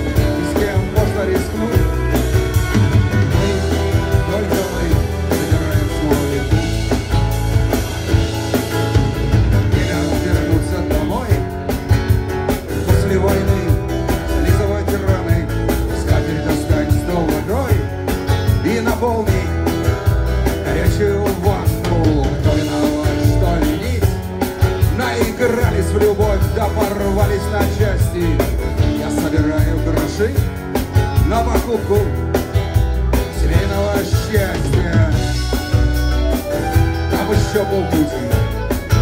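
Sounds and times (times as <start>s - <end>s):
drum kit: 0.0s - 39.0s
electric guitars: 0.0s - 39.0s.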